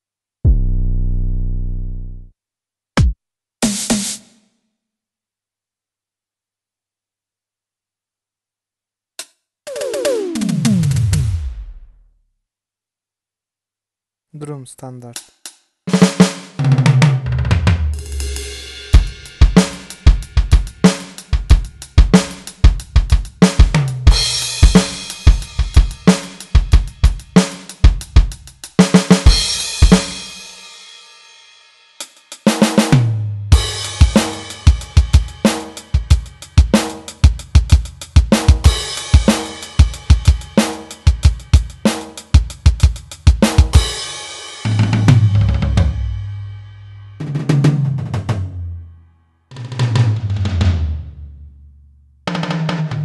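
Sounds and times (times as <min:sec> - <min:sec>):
electronic drum kit pattern: 0:09.7 - 0:11.9, 0:18.0 - 0:30.4, 0:33.6 - 0:46.2.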